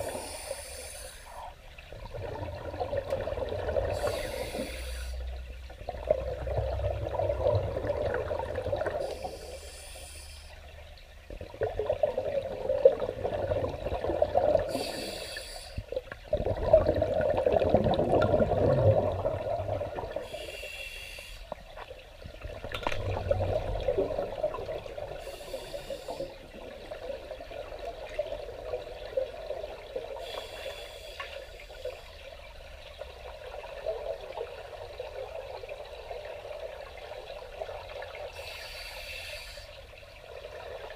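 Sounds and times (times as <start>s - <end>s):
scuba regulator hiss: 0.0s - 1.5s, 4.0s - 5.2s, 9.0s - 10.6s, 14.7s - 15.8s, 20.3s - 21.5s, 25.2s - 26.3s, 30.2s - 31.8s, 38.4s - 39.8s
bubbling of exhaled air: 0.0s - 5.0s, 5.9s - 10.0s, 11.4s - 20.7s, 22.4s - 30.6s.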